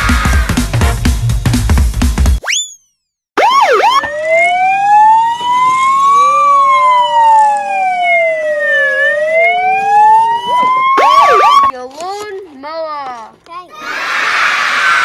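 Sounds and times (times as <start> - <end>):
electronic toy police siren: 3.4 - 11.7.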